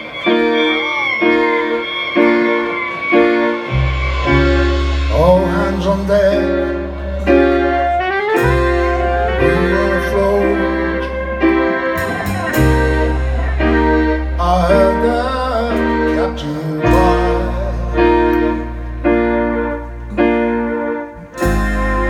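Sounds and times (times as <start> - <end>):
person singing: 0.0 - 19.4
keyboard chords: 0.0 - 22.0
bass notes: 1.4 - 22.0.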